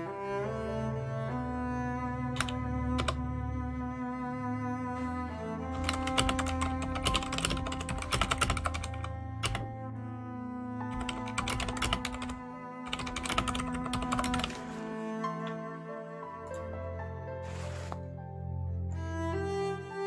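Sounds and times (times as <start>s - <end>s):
soft cello music: 0.0s - 20.0s
computer keyboard typing: 2.4s - 3.2s, 5.8s - 9.7s, 10.9s - 14.6s.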